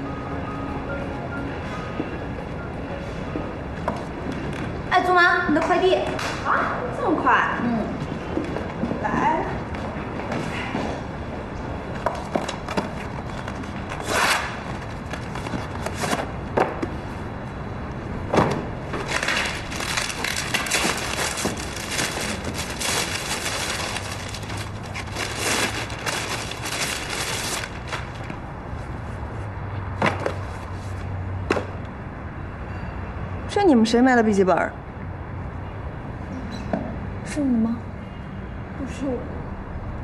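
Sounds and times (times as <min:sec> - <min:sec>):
plastic bags rustling and tearing: 0:19.0 - 0:28.4.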